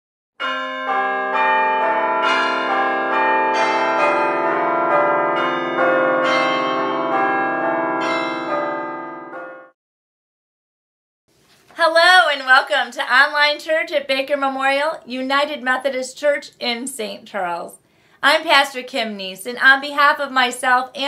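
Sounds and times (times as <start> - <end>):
bells ringing: 0.4 - 9.8.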